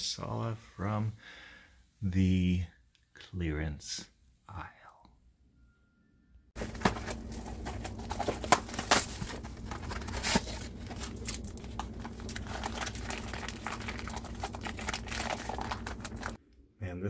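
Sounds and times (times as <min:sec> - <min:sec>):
steady low hum: 0:06.5 - 0:17.0
packaging crinkling and rustling: 0:06.6 - 0:16.4.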